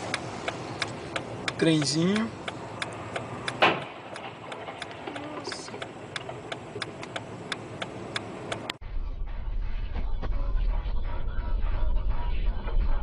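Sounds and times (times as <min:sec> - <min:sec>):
turn-signal relay clicking: 0:00.0 - 0:08.8
loud car collision bang: 0:03.6 - 0:04.1.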